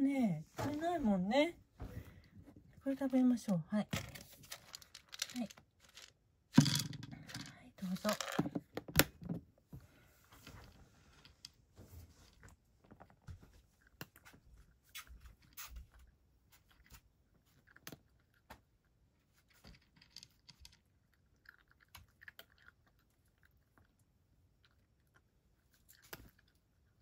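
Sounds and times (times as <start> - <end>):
cat crunching dry kibble: 12.4 - 27.0.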